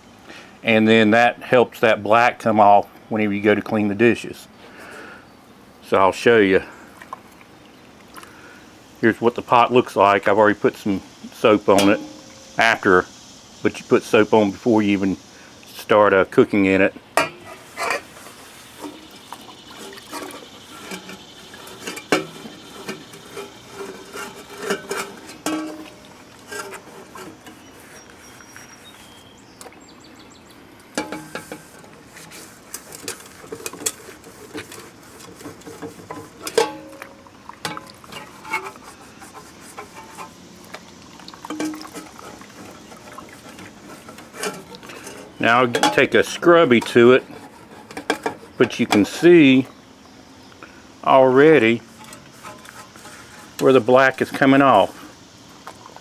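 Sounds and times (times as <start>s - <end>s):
metal pots clinking: 11.6s - 12.9s, 17.2s - 27.7s, 30.9s - 49.7s, 51.8s - 54.9s
cloth rubbing on metal: 17.4s - 29.2s, 31.0s - 36.8s, 38.1s - 40.4s, 41.6s - 49.5s, 51.4s - 55.1s.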